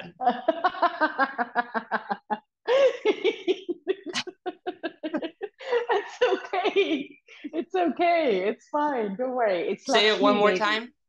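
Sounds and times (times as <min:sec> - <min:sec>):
women laughing: 0:00.0 - 0:07.7.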